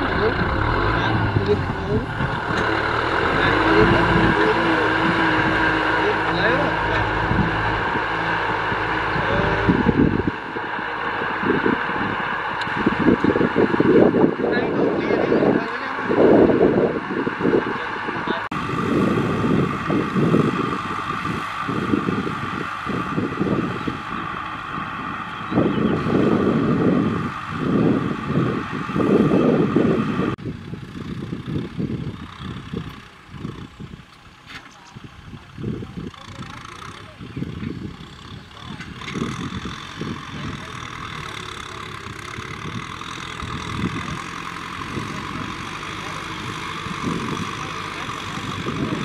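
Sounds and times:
tractor diesel engine running: 0:00.0 - 0:49.0
wind buffeting microphone: 0:00.0 - 0:49.0
disc plough through dry soil: 0:18.5 - 0:49.0.

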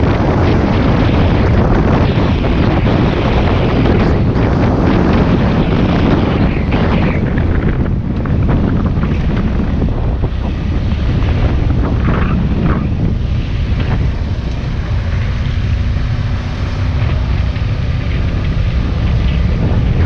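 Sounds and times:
motorcycle engine running: 0:00.0 - 0:20.0
wind buffeting microphone: 0:00.0 - 0:20.0.

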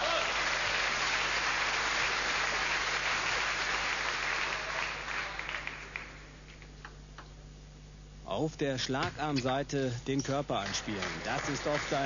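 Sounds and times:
crowd applauding: 0:00.0 - 0:06.6, 0:10.5 - 0:12.0.

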